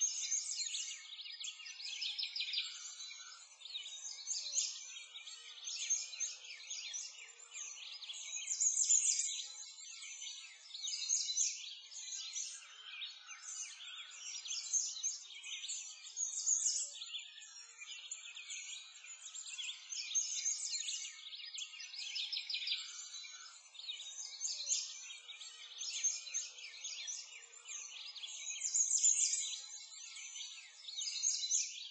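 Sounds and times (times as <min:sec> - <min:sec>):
small birds chirping: 0:00.0 - 0:31.9.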